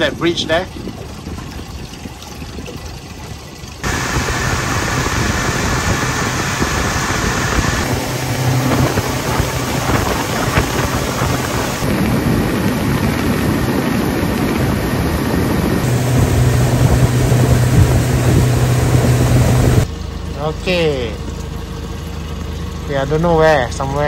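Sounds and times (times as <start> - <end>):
rushing water: 0.0 - 19.9
outboard motor hum: 0.0 - 24.0
rushing wind: 3.8 - 19.9.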